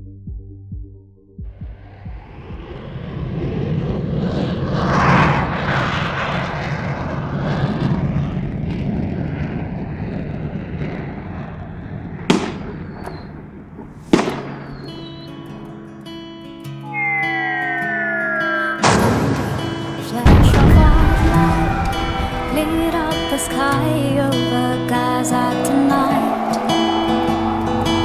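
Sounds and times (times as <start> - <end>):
long rumbling roar: 1.6 - 13.9, 16.9 - 28.0
sharp cracks with falling ring: 13.8 - 15.7.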